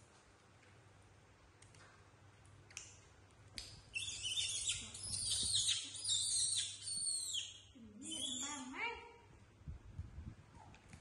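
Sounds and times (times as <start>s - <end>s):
monkey squealing: 4.0s - 8.6s.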